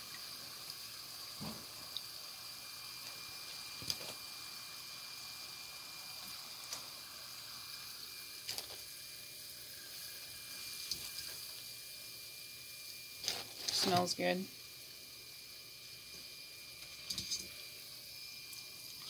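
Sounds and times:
dough sizzling in hot oil: 0.0 - 19.0.

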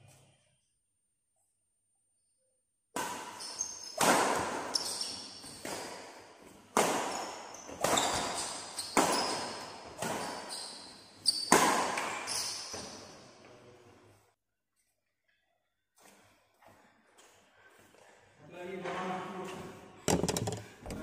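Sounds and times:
shoes squeaking on court: 4.6 - 5.8, 7.1 - 13.2
rackets hitting shuttlecock: 6.7 - 10.5, 11.4 - 12.8.

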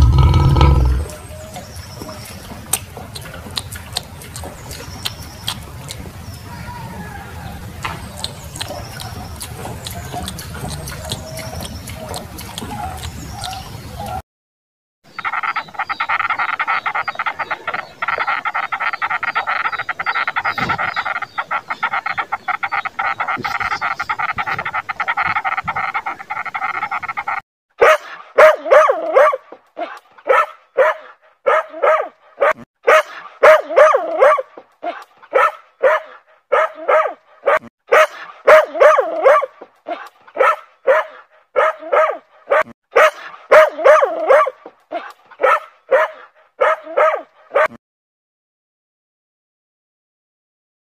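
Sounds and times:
small dog barking sharply: 27.8 - 29.4, 30.3 - 34.4, 35.4 - 39.5, 40.4 - 44.6, 45.4 - 47.8.

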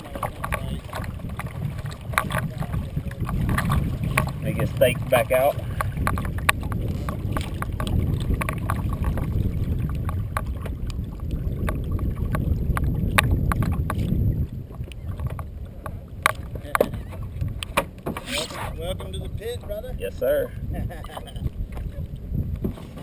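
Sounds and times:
wind rumbling on microphone: 0.0 - 23.0
knocks and clicks from hull: 0.1 - 4.7, 5.6 - 11.0, 11.6 - 14.1.

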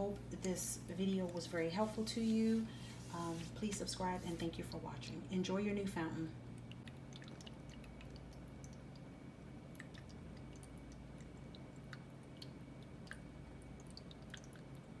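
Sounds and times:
water trickling and dripping: 6.4 - 15.0.

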